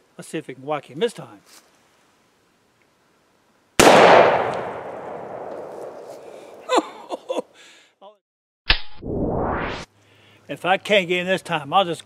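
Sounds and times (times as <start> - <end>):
pistol shot echoing: 3.8 - 6.6.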